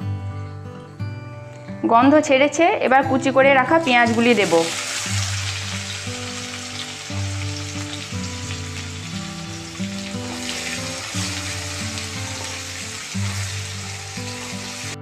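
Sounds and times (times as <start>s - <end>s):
background music: 0.0s - 15.0s
onions sizzling in hot oil: 3.7s - 15.0s.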